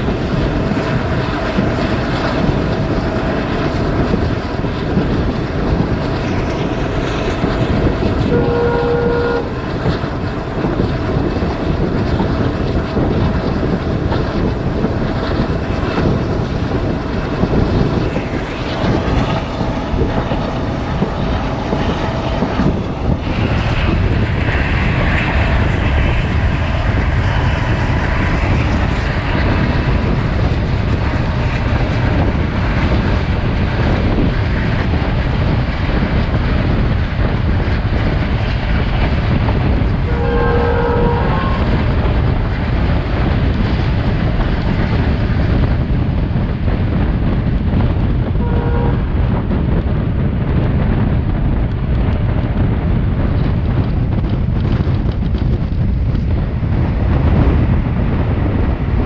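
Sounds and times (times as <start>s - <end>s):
rushing air: 0.0s - 59.0s
train wheels rumbling on rail: 0.0s - 59.0s
train horn blast: 8.2s - 10.0s, 40.0s - 42.1s, 48.4s - 49.4s.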